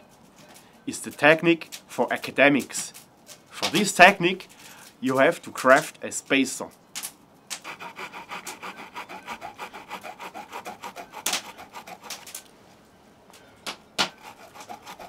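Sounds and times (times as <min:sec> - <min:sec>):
saw blade sawing wood: 0:07.6 - 0:12.4, 0:14.0 - 0:15.0.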